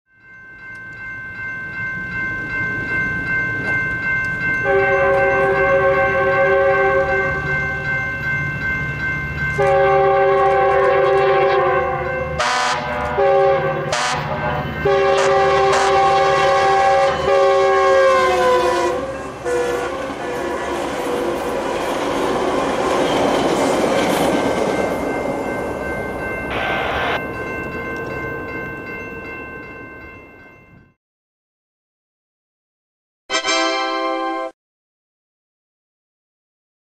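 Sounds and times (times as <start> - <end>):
fire truck horn blasts: 4.6 - 7.5, 9.6 - 21.4
train air horn blasts: 4.6 - 7.5, 9.6 - 21.7
steady high tone: 13.6 - 30.9.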